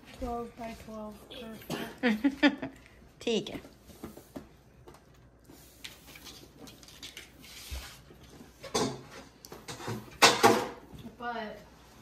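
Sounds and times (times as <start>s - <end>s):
baking tray clattering: 8.6s - 10.9s.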